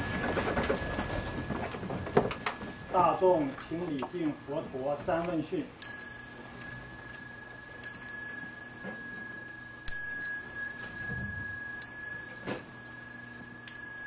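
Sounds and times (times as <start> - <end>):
hand bell ringing: 5.8 - 14.0.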